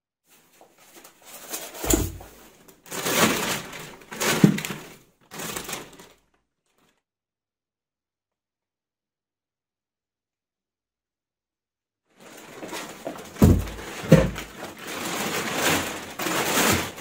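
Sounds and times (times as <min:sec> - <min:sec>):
plastic wrap crinkling: 0:00.4 - 0:07.0, 0:12.2 - 0:17.0.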